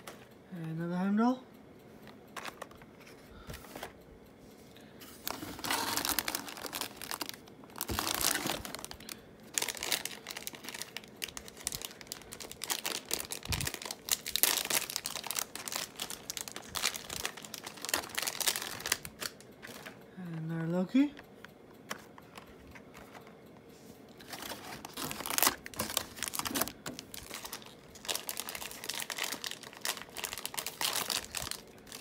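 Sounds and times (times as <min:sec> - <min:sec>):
plastic bag rustling: 0:05.1 - 0:20.0, 0:24.2 - 0:32.0
foil pack tearing and crinkling: 0:05.2 - 0:19.9, 0:24.2 - 0:32.0.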